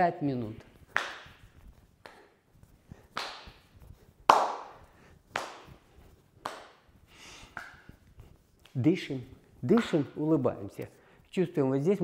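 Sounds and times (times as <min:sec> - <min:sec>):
sharp hand claps: 0:00.9 - 0:01.4, 0:03.1 - 0:03.7, 0:04.3 - 0:05.8, 0:06.4 - 0:06.9, 0:07.5 - 0:07.9, 0:09.8 - 0:10.1.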